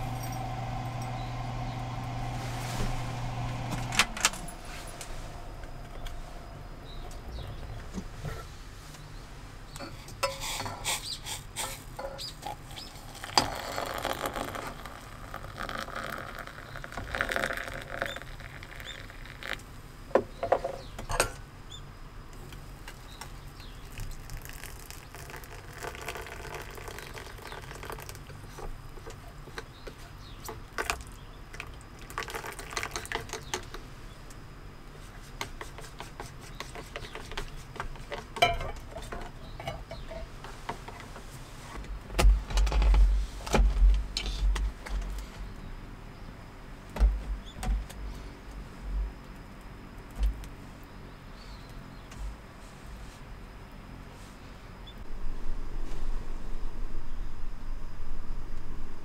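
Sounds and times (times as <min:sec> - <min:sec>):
steady low hum: 0:00.0 - 0:10.3, 0:37.9 - 0:59.0
hot water pouring into metal mug: 0:12.4 - 0:19.6, 0:23.8 - 0:28.2, 0:32.0 - 0:33.4.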